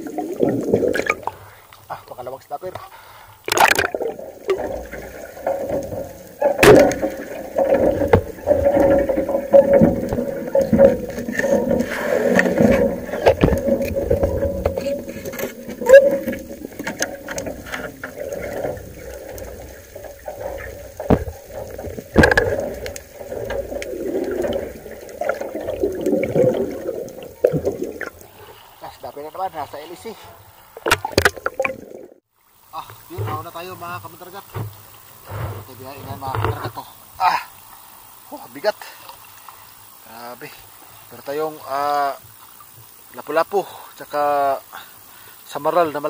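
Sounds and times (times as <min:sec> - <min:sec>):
underwater churning and bubbling: 0:00.0 - 0:02.0, 0:02.8 - 0:38.3
sharp knocks: 0:20.0 - 0:23.6.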